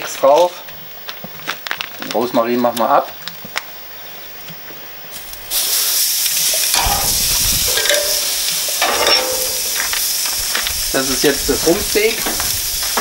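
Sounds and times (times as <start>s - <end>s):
steak sizzling on a grill: 5.0s - 13.0s.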